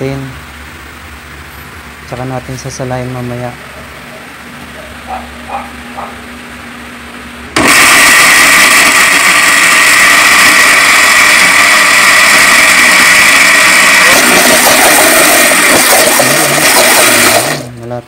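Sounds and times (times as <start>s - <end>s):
blender running at full speed: 7.6s - 17.8s.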